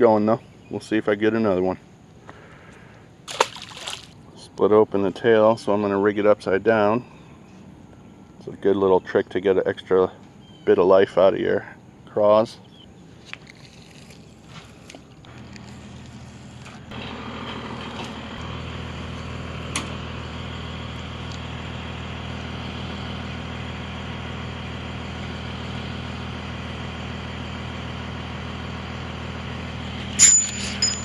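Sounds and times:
boat motor engine droning: 14.6s - 31.0s.

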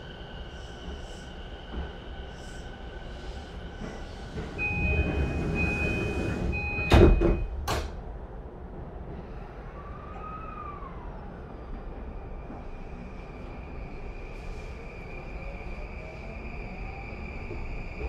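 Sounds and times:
train doors thudding shut: 3.8s - 8.0s.

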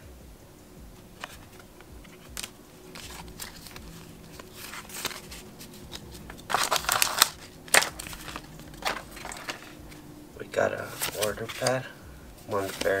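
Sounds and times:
cards rustling and clicking: 1.2s - 13.0s
foil wrapper crinkling: 2.3s - 10.0s, 10.8s - 13.0s.

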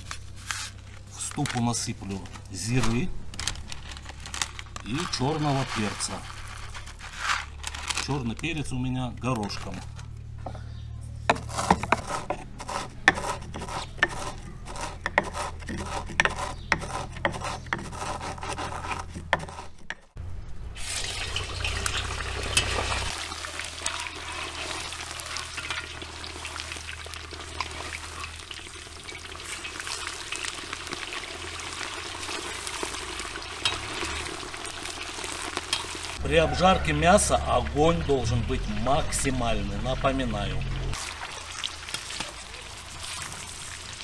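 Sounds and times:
pestle pounding in wooden mortar: 11.3s - 20.2s
meat sizzling in hot oil: 20.8s - 36.2s, 40.9s - 44.0s.

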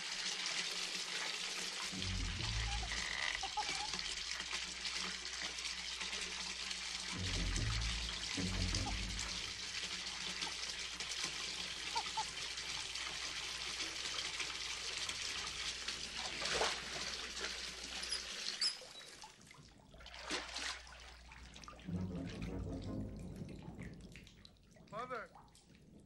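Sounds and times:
small water splashes: 0.0s - 22.8s
water running into bathtub: 0.0s - 26.0s
low hum: 1.9s - 4.2s, 7.0s - 10.6s, 21.9s - 24.6s.

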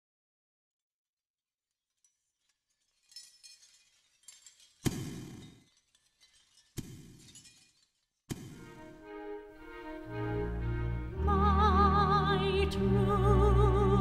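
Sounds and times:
glassy crystal tinkling: 2.0s - 8.0s.

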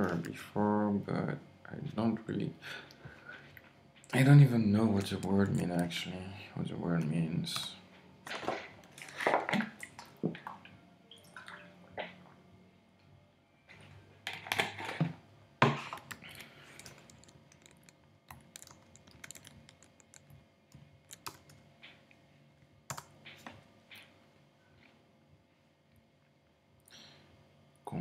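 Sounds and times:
keyboard typing: 16.0s - 21.6s, 22.9s - 23.1s.

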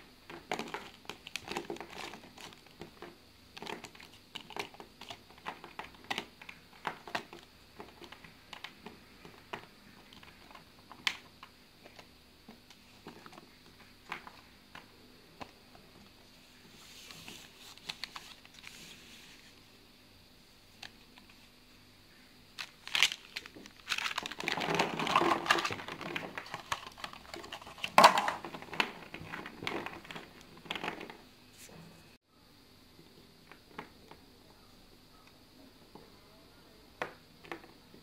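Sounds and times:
plasticine cubes clicking and tapping: 0.2s - 16.1s
plastic cases rustling: 22.6s - 31.2s.

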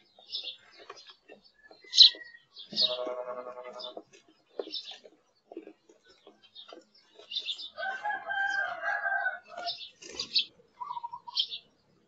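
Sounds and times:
sparrows chirping: 0.0s - 12.0s
rooster crowing: 7.8s - 9.8s.

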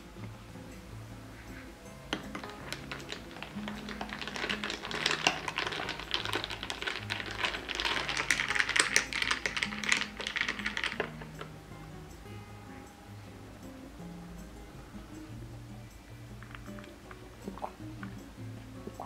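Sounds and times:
ice cubes clinking in glass: 2.1s - 11.5s.

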